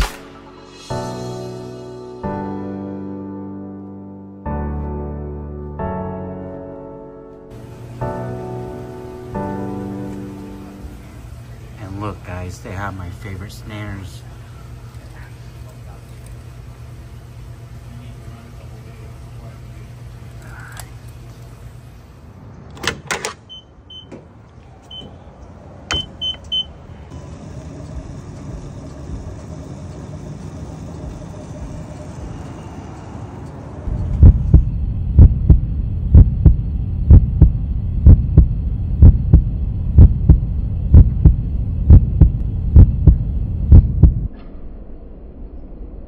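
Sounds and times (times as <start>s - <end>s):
fuel pump keypad beeps: 23.4s - 24.2s, 24.9s - 25.2s, 25.9s - 26.8s
deep repeating thump: 33.9s - 44.4s.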